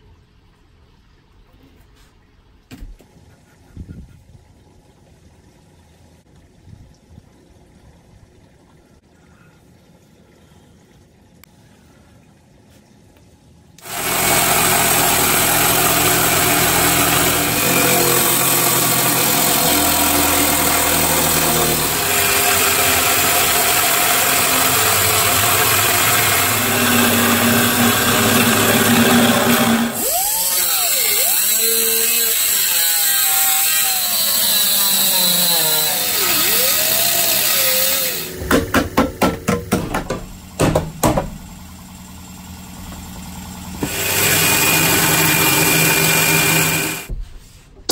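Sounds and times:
power saw cutting plywood: 13.8s - 47.2s
sharp knocks: 38.4s - 41.6s.

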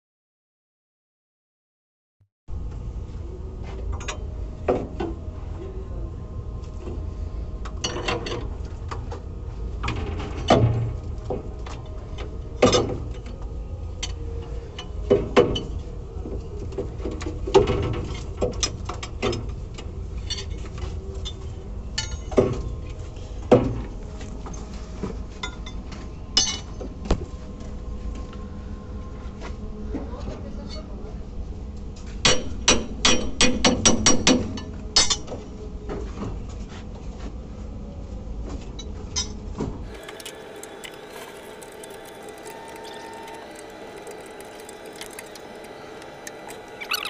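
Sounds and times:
steady low hum: 39.9s - 47.0s.

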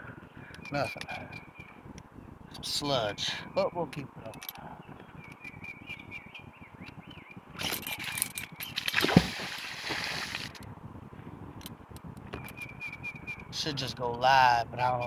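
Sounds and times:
rope rushing out: 8.6s - 10.6s.

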